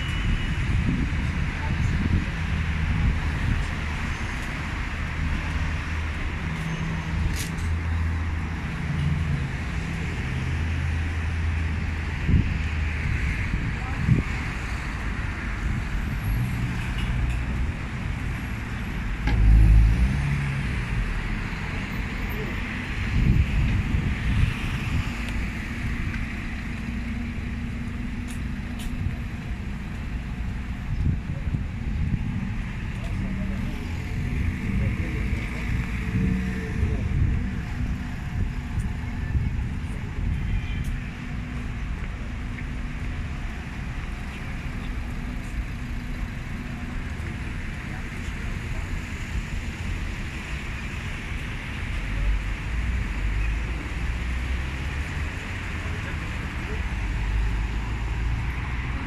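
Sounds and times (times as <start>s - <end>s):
wind rumbling on microphone: 0.0s - 6.4s, 8.8s - 22.0s, 22.8s - 50.0s
passing road traffic: 0.0s - 59.0s
vehicle engine humming: 0.0s - 59.0s.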